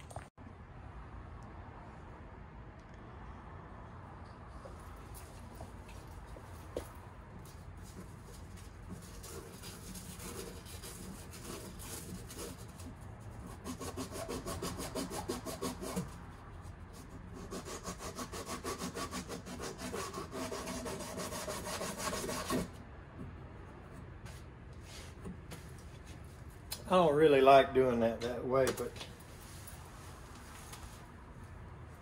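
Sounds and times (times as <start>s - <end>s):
rasping metal on metal cutting: 9.0s - 16.2s, 17.4s - 22.8s.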